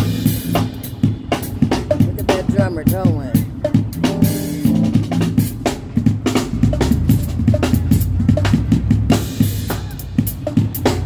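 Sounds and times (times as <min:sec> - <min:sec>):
drum kit beat: 0:00.0 - 0:11.0
low bass notes: 0:01.9 - 0:09.8.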